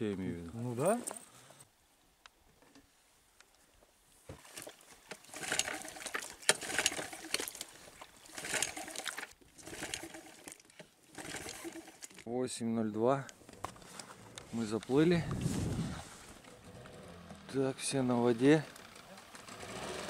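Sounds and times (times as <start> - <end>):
outboard motor rattling: 4.4 - 12.2.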